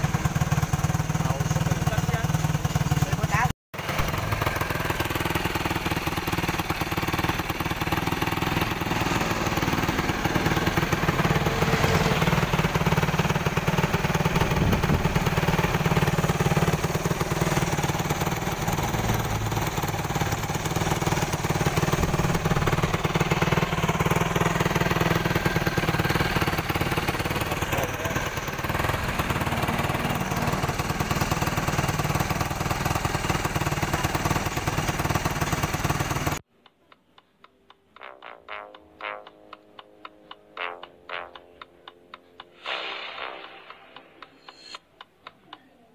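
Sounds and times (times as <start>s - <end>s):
quad engine idling: 0.0s - 36.4s.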